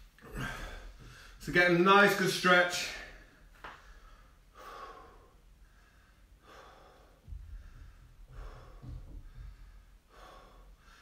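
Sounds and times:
man breathing through mouth: 3.2 - 11.0
low rumble: 7.2 - 10.0.

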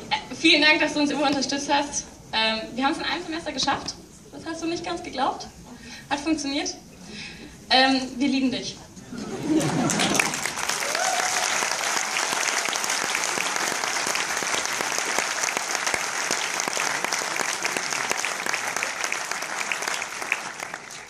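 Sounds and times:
audience applauding: 9.5 - 21.0.

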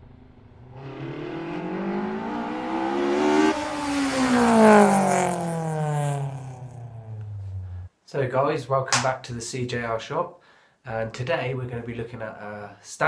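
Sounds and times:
vehicle engine revving past: 0.0 - 7.9.

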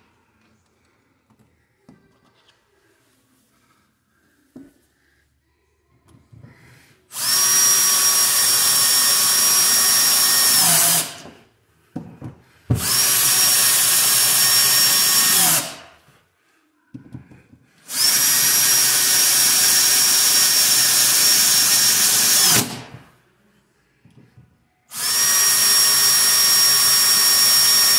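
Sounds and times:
cordless drill drilling plastic: 7.1 - 11.3, 12.8 - 15.8, 17.9 - 22.9, 24.9 - 27.9.

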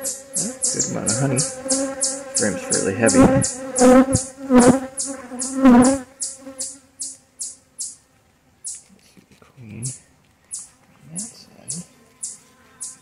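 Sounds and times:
high regular chirp: 0.0 - 4.3, 4.9 - 8.0, 9.9 - 13.0
honeybees buzzing: 0.0 - 8.0.

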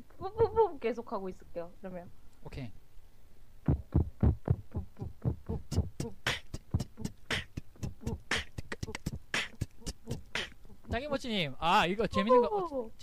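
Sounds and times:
beatboxing snare hits: 3.7 - 11.0
beatboxing bass kicks: 3.7 - 11.1.

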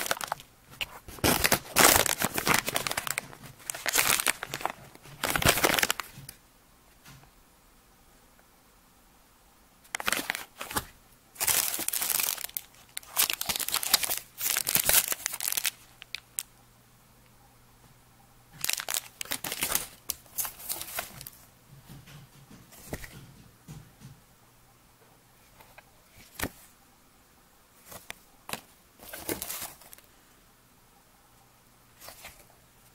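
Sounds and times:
plastic packaging crinkling: 0.0 - 6.4, 9.9 - 16.5, 18.5 - 21.4, 27.9 - 30.1.

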